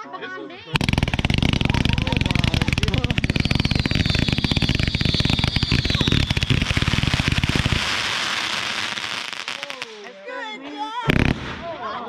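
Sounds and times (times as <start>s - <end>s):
high firework whistle: 0.8s - 8.5s
firework cake shots: 0.8s - 10.1s.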